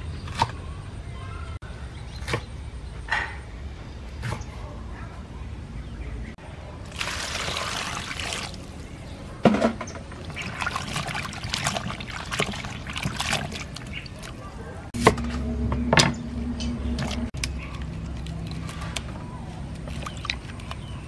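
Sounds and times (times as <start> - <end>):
hands swishing vegetables in water: 10.2 - 14.5.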